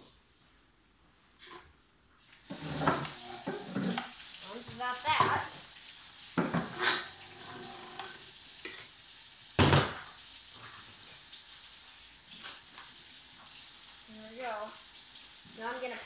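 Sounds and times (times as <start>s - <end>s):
steady hiss: 2.2s - 14.8s
blender jar clunks: 6.4s - 8.1s.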